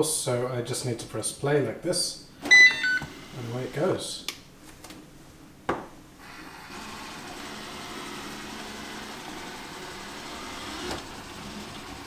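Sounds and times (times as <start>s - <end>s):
robot vacuum cleaner running: 6.2s - 12.0s.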